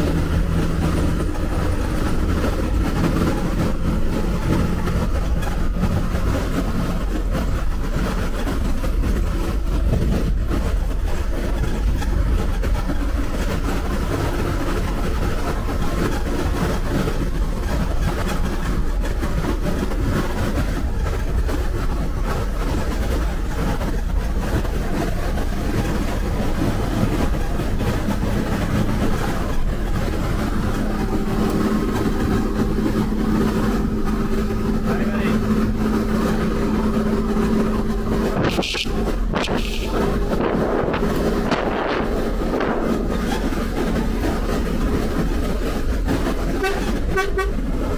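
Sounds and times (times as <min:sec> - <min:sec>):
bus engine running: 0:00.0 - 0:47.9
road and tyre rumble: 0:00.0 - 0:47.9.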